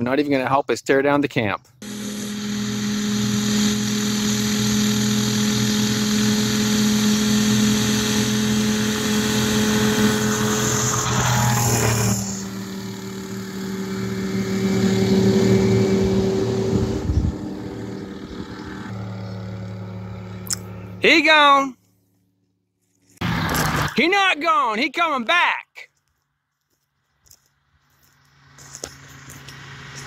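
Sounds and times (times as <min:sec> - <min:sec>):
light aircraft engine droning: 0:01.8 - 0:21.1, 0:27.5 - 0:30.0.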